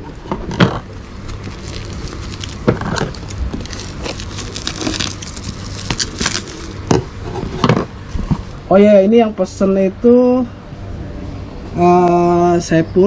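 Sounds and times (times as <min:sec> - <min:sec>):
plastic crinkling: 0:00.1 - 0:07.6.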